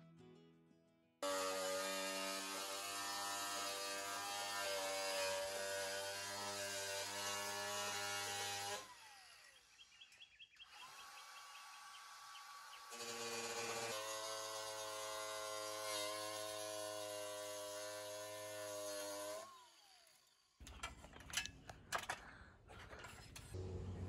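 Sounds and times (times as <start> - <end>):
cordless power tool whining: 1.2 - 9.9, 10.6 - 20.6.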